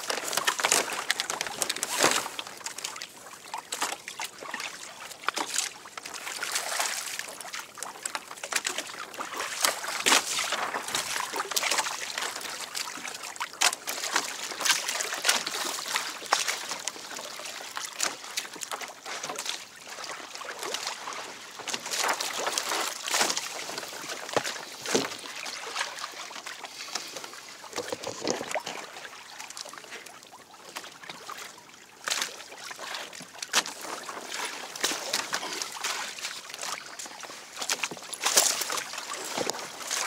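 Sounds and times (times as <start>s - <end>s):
water lapping against hull: 0.0s - 40.0s
knocks and rustles: 27.7s - 28.8s.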